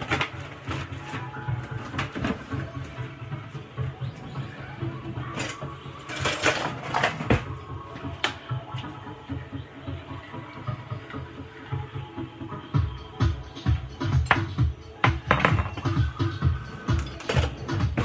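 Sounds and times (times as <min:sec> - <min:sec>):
electronic dance music: 0:02.6 - 0:18.0
kitchen utensils clattering: 0:05.2 - 0:07.5, 0:15.1 - 0:16.1, 0:16.8 - 0:18.0.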